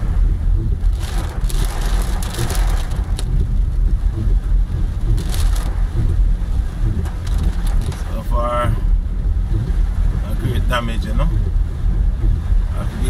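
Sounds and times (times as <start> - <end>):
car cabin rumble: 0.0 - 13.0.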